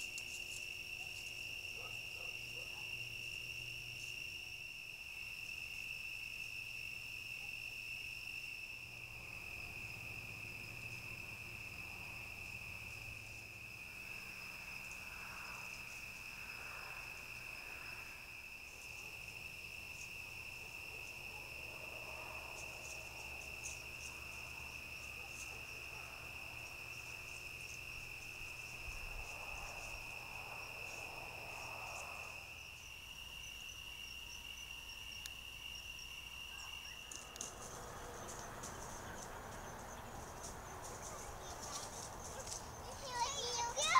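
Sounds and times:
crickets trilling: 0:00.0 - 0:43.9
soft rustling: 0:37.1 - 0:43.0.

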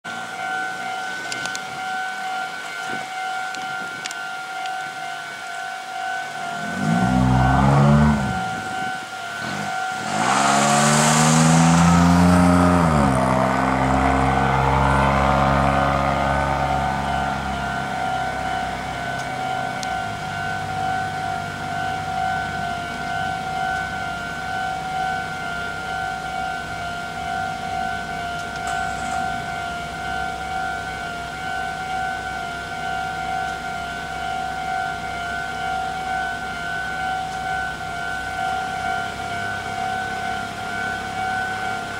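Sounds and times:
level-crossing warning bell: 0:00.0 - 0:41.9
passing road vehicle engine: 0:06.6 - 0:23.1.

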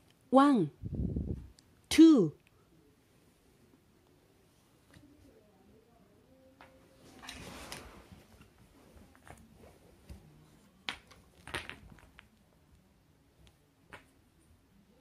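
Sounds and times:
wooden blocks clacking: 0:10.9 - 0:12.4.

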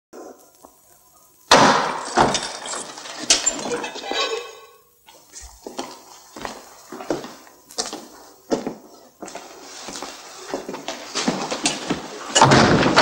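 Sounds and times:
faint footsteps: 0:05.1 - 0:12.3
heavy metal door clanking open: 0:12.4 - 0:13.0.

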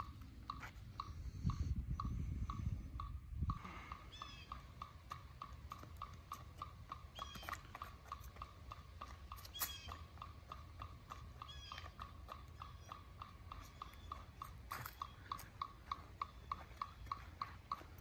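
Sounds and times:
metronome clicking: 0:00.0 - 0:18.0
bird chirps: 0:03.7 - 0:06.1, 0:06.9 - 0:08.0, 0:09.0 - 0:18.0.

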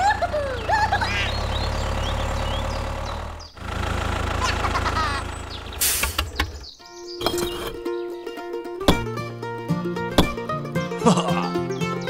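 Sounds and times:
tractor diesel engine idling: 0:00.0 - 0:07.8
high squeaky chirps: 0:00.8 - 0:03.6, 0:04.4 - 0:08.0.

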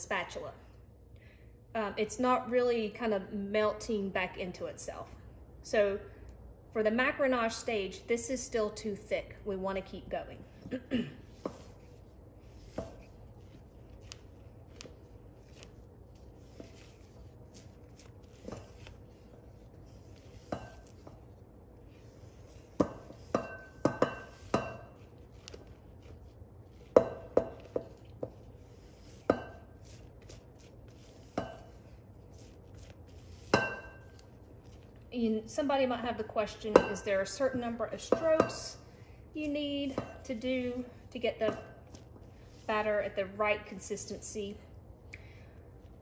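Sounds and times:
spatula scraping a mixing bowl: 0:11.2 - 0:35.0.

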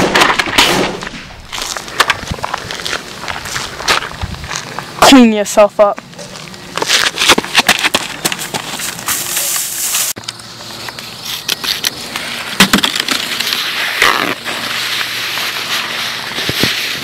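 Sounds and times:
running footsteps on gravel: 0:01.4 - 0:05.0, 0:06.2 - 0:10.8
rustling: 0:06.2 - 0:17.0
spray: 0:09.1 - 0:10.2, 0:13.6 - 0:17.0.

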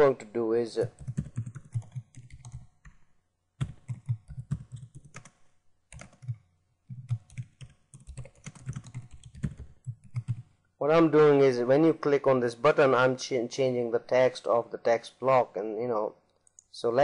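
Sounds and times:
typing on a keyboard: 0:00.8 - 0:03.0, 0:03.6 - 0:10.5.

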